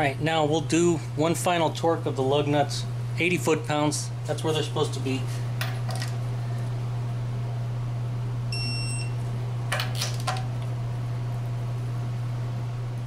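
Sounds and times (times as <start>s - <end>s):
steady low hum: 0.0s - 13.0s
torque wrench beep: 8.5s - 9.2s.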